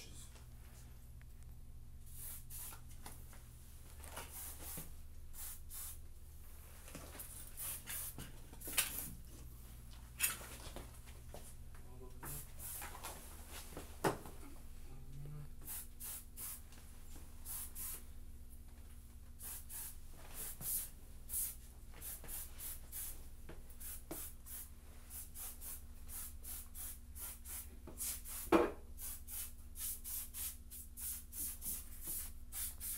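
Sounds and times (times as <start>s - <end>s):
aerosol spray hisses: 2.1s - 2.8s, 5.4s - 6.0s, 15.6s - 16.6s, 17.4s - 18.0s, 19.4s - 23.2s, 23.8s - 32.9s.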